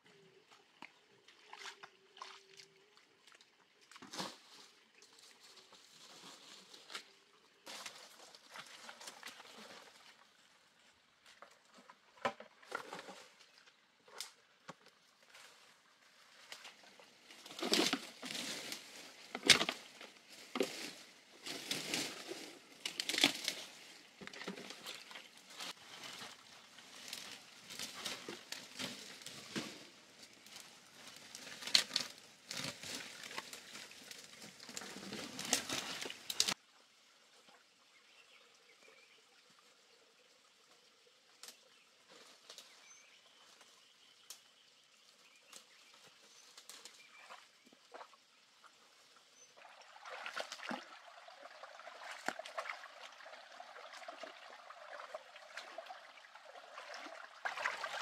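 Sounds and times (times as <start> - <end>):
dry grass and brush rustling: 4.0 - 10.2, 15.0 - 36.6.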